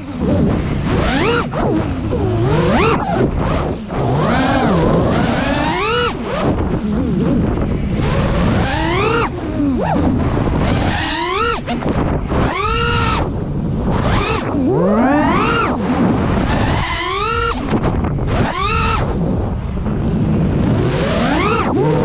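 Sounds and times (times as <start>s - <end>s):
drone motors whining: 0.0s - 22.0s
wind rushing over microphone: 0.0s - 22.0s.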